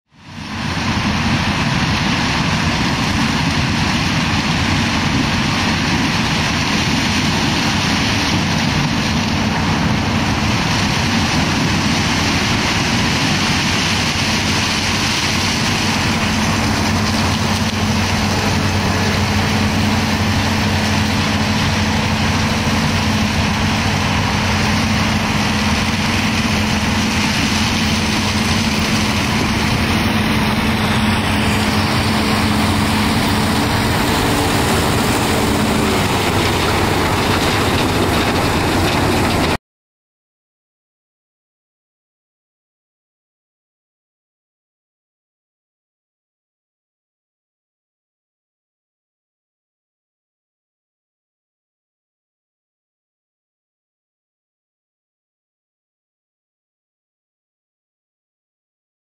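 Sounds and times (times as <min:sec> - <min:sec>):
combine harvester engine drone: 0:00.1 - 0:39.6
machinery noise: 0:00.1 - 0:39.6.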